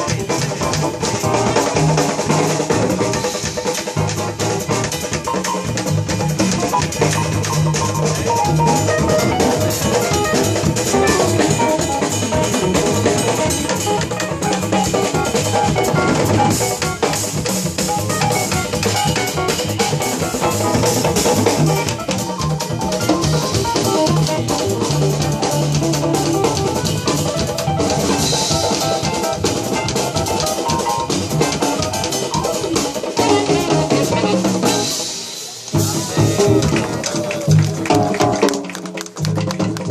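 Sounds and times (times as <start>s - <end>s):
drum kit: 0.0s - 39.9s
hand drums: 0.0s - 39.9s
live jazz band: 0.0s - 39.9s
piano: 0.0s - 39.9s
saxophone: 8.1s - 17.1s, 31.3s - 37.5s.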